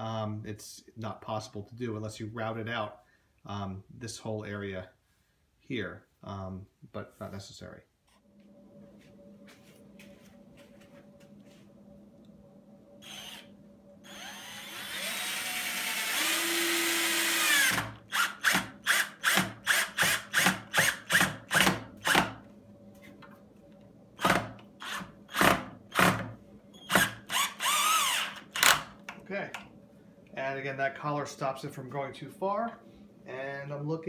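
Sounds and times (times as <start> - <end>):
cordless drill driving screw: 13.0 - 22.3, 24.2 - 26.2, 26.8 - 28.9.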